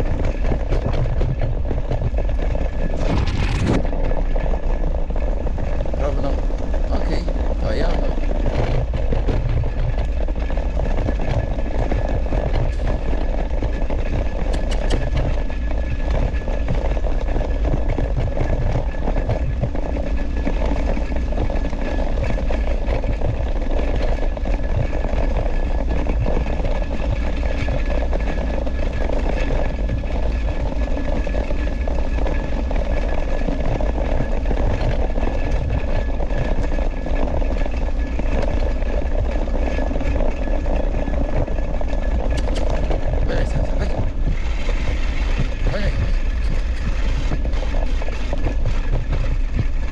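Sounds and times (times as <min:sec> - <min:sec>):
scooter rattling over dirt trail: 0:00.0 - 0:49.9
wind rumble on microphone: 0:00.0 - 0:49.9.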